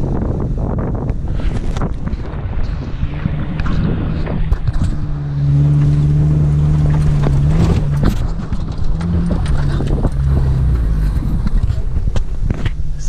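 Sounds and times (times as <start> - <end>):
vehicle engine droning: 0.0 - 13.0
vehicle knocks and rattles: 1.6 - 13.0.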